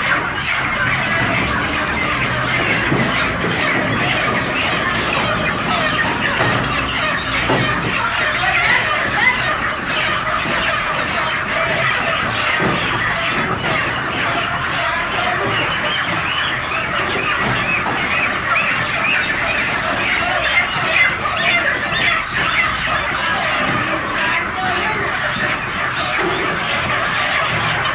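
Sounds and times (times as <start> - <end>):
chickens clucking and squawking: 0.0 - 27.9.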